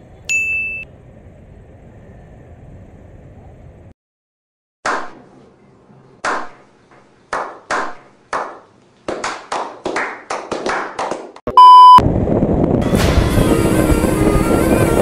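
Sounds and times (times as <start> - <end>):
people slow clapping: 7.3 - 11.4
loud steady beep: 11.5 - 12.0.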